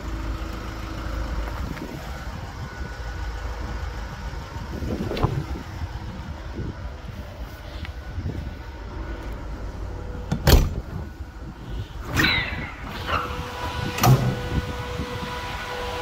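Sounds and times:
truck engine hum: 0.0s - 16.0s
loud clunks: 10.3s - 11.0s
short squeal: 12.0s - 13.3s.

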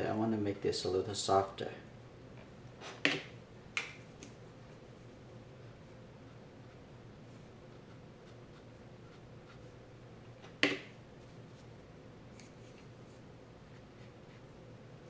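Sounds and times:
low steady hum: 0.0s - 15.0s
brush stroking on paper: 12.4s - 14.6s.

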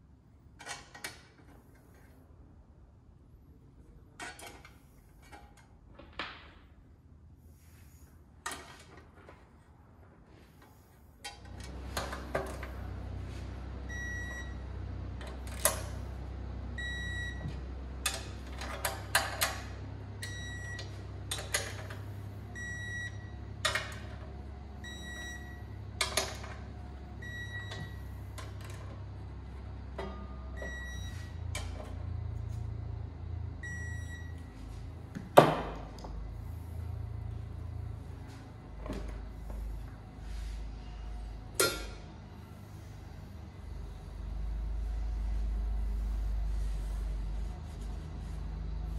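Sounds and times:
low hum: 10.1s - 48.9s.

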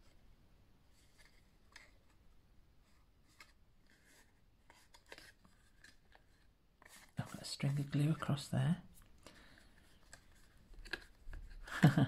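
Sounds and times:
card stock rustling and tapping: 10.0s - 11.6s.

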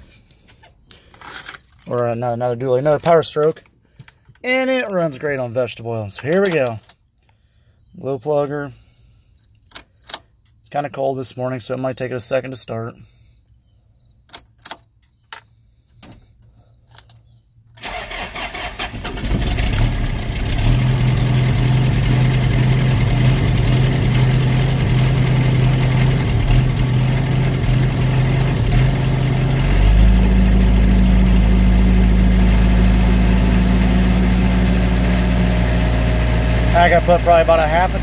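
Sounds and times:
diesel engine idling: 17.8s - 38.0s.

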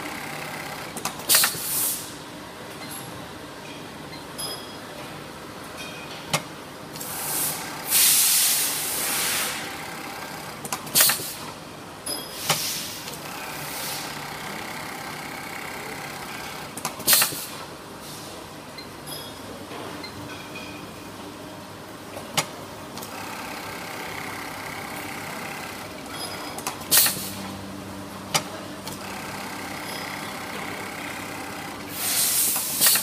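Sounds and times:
machine mechanical hum: 0.0s - 33.0s
loud pneumatic hisses: 1.3s - 2.2s, 7.0s - 9.6s, 11.0s - 11.4s, 12.3s - 14.1s, 17.1s - 18.3s, 31.9s - 33.0s.

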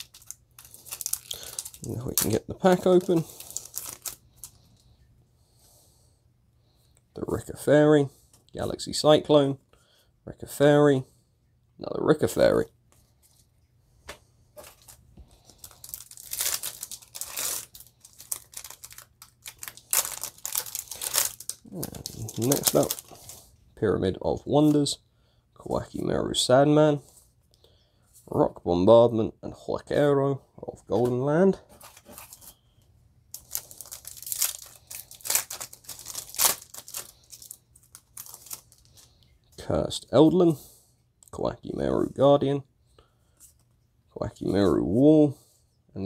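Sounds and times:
foil wrapper crinkling and ripping: 0.0s - 4.6s, 14.6s - 23.4s, 33.3s - 39.2s.

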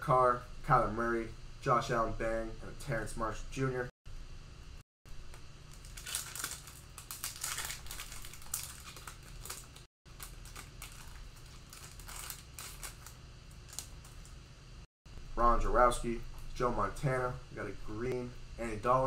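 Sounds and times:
foil wrappers crinkling: 5.6s - 14.4s.

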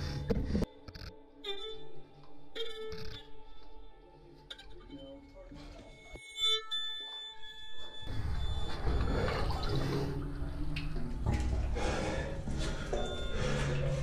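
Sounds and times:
water sloshing and splashing: 7.8s - 14.0s.

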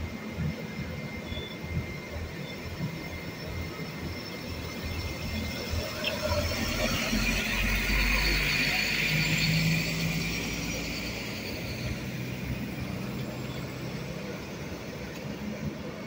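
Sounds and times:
train engine drone: 0.0s - 16.0s
wheel-on-rail rumble: 0.0s - 16.0s
high wheel squeal: 1.1s - 14.4s.

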